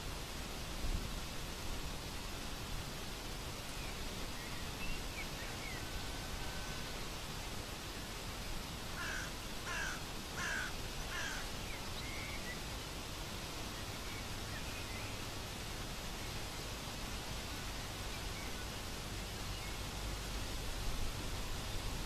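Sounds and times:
steady outdoor hiss: 0.0s - 22.0s
small birds chirping: 8.5s - 15.4s
bird cawing: 9.0s - 11.5s.

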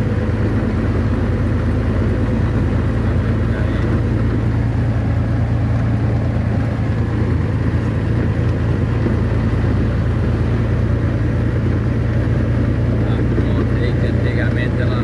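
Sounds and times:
road noise: 0.0s - 15.0s
vehicle engine hum: 0.0s - 15.0s.

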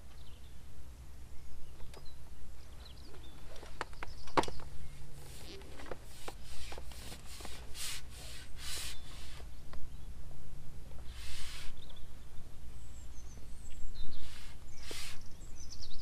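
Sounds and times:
pole sections rasping: 5.2s - 9.5s.

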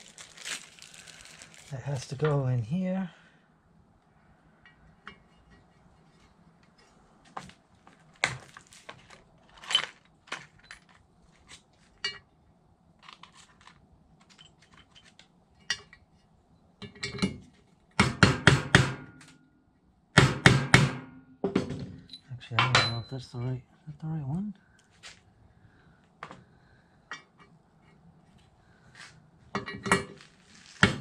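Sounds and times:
metal tools clinking: 9.5s - 12.2s, 22.0s - 23.5s.

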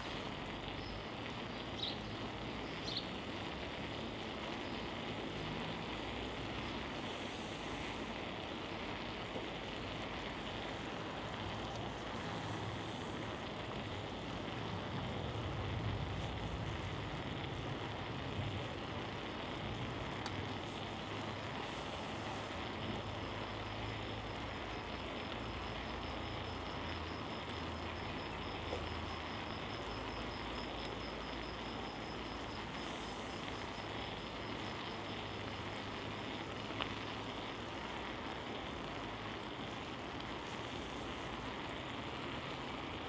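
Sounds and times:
broad hiss: 0.0s - 43.0s
low road rumble: 0.0s - 43.0s
light bicycle clicks: 15.7s - 20.7s.

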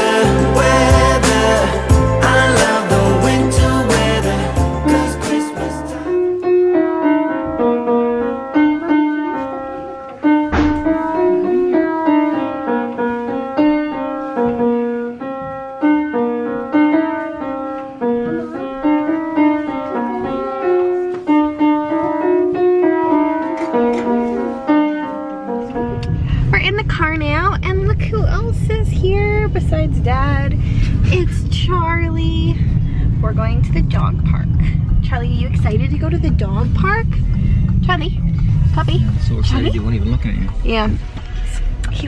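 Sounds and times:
piano melody and chords: 0.0s - 26.5s.

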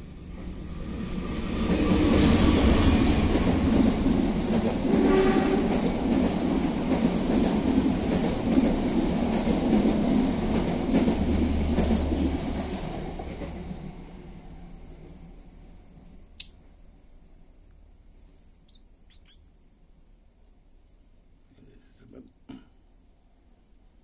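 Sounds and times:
cicada buzzing: 16.8s - 19.9s.

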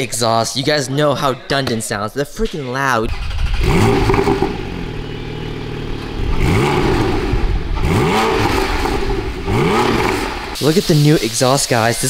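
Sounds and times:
car engine revving: 3.1s - 10.6s.

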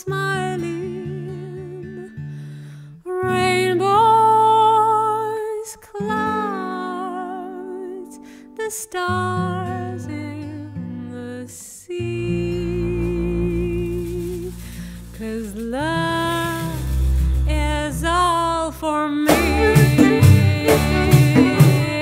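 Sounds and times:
acoustic guitar: 0.0s - 22.0s
bass: 12.0s - 22.0s
sliding melody with vibrato: 19.3s - 22.0s.

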